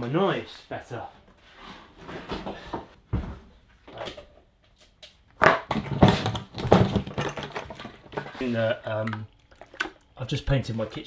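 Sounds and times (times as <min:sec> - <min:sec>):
freezer scraping and knocking: 0:05.5 - 0:08.6.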